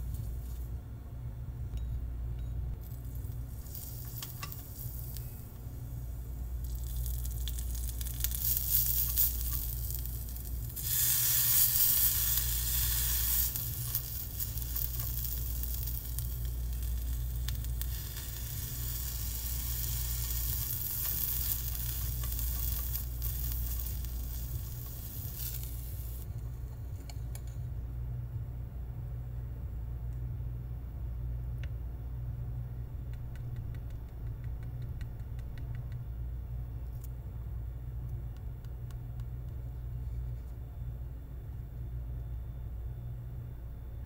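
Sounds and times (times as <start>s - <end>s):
stems sizzling in hot oil: 2.8s - 26.3s.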